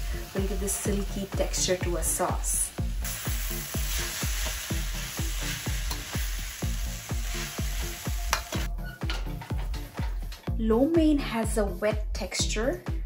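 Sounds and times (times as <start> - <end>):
noodles sizzling in a wok: 0.0 - 8.7.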